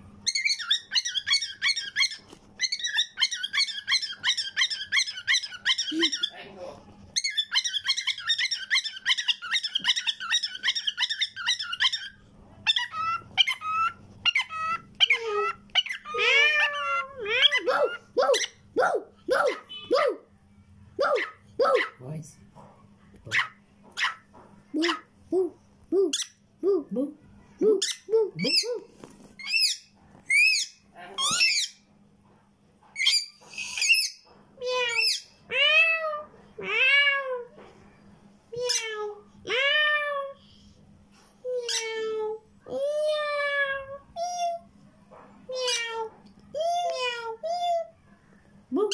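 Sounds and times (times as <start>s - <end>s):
cockatiel chirping: 0.2s - 6.4s, 7.2s - 18.6s.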